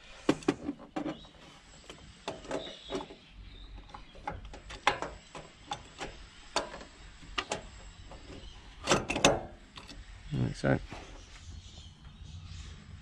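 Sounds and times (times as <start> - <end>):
metal parts clicking and knocking: 3.8 - 10.0.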